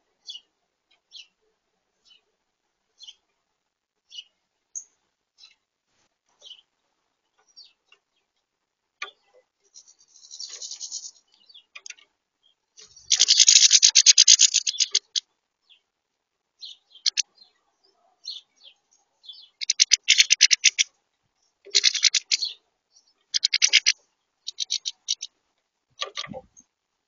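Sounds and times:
goldfinches twittering: 12.9s - 15.2s, 21.7s - 22.6s, 23.3s - 25.3s.

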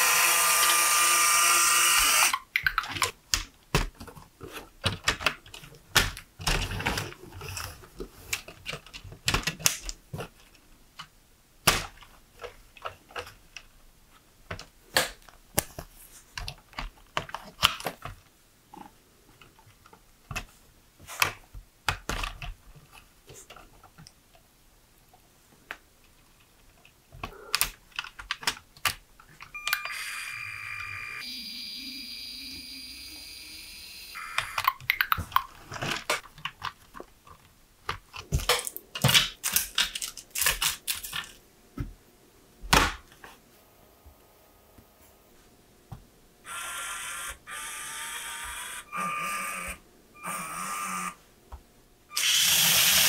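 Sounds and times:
plastic parts clicking together: 2.1s - 13.7s, 14.5s - 18.3s, 21.2s - 24.4s, 25.7s - 29.9s, 34.4s - 41.4s.

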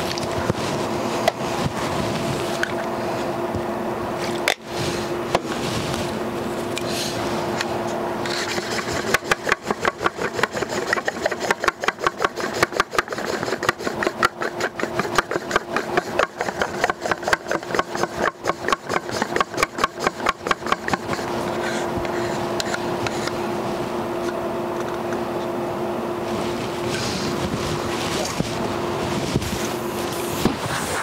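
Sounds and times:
steady low hum: 0.0s - 31.0s
stick stirring paint: 5.3s - 23.4s.

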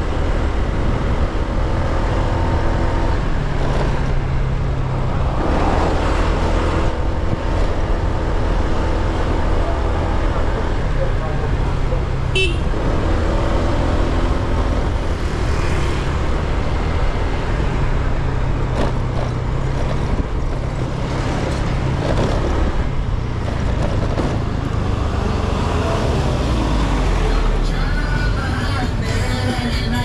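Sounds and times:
road noise: 0.0s - 30.0s.

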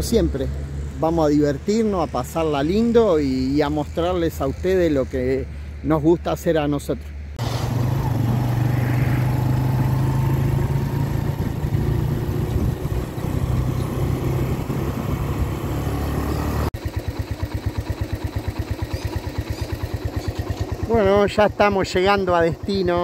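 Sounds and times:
small motorcycle engine running: 7.4s - 23.0s
wind noise: 11.2s - 15.5s
engine idling: 16.4s - 23.0s.

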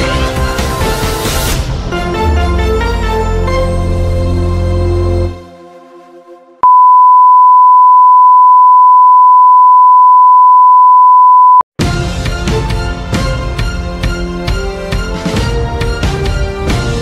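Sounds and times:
steady pure test tone beep: 6.6s - 11.6s.

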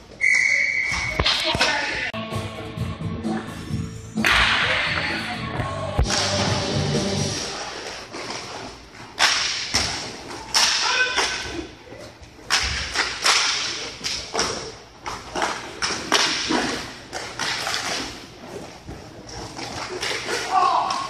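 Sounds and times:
hockey sticks clacking on puck: 7.8s - 11.6s, 12.4s - 21.0s
puck hitting rink boards: 9.2s - 11.5s, 12.5s - 18.2s.

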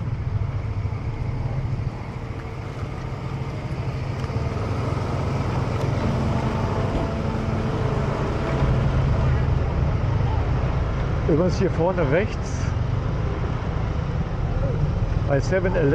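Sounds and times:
scooter engine hum: 0.0s - 11.3s
road noise: 0.0s - 15.9s.

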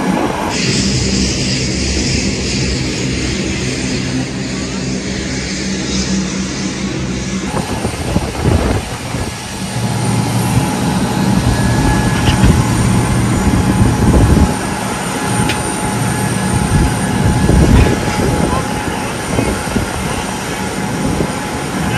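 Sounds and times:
aircraft engines roaring: 0.0s - 21.9s
diesel engine idling: 7.5s - 21.9s.

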